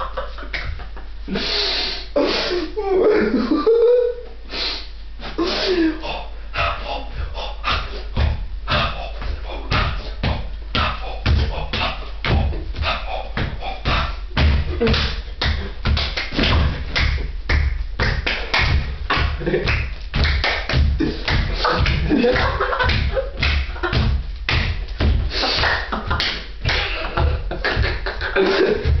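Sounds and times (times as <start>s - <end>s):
vocal percussion: 5.2s - 29.0s
mock tribal chanting: 6.0s - 14.9s
steady thumping beat: 6.6s - 29.0s.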